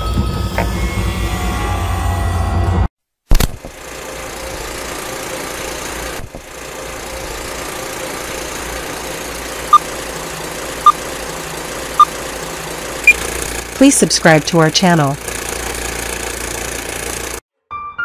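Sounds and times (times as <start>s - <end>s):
mechanical whirring: 3.6s - 17.4s.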